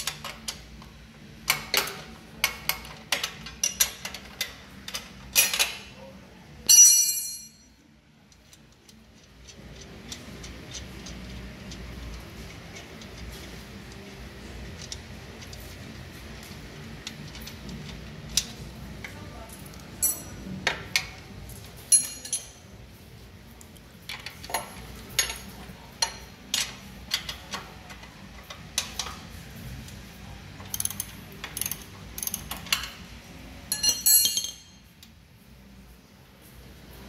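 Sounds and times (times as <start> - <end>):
wrench clicking on metal: 1.4 - 5.8, 8.4 - 14.1, 30.6 - 32.9
rattling metal clinks: 6.7 - 7.8, 19.6 - 20.4, 21.8 - 22.6, 33.7 - 34.9.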